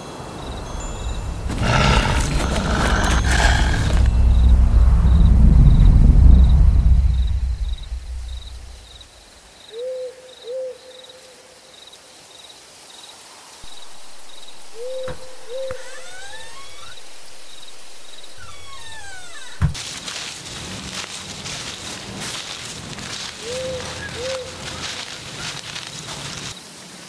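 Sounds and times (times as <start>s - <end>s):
crickets chirping: 0.0s - 19.7s
low rumble: 0.5s - 9.1s
owl hooting: 9.7s - 11.0s, 13.7s - 17.6s, 23.4s - 24.6s
steady hiss: 11.2s - 23.4s.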